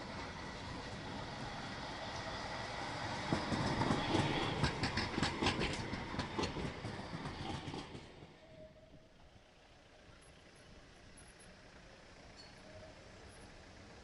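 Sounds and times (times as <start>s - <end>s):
tram wheels clacking on track: 0.0s - 9.2s
tram rumble: 0.0s - 14.0s.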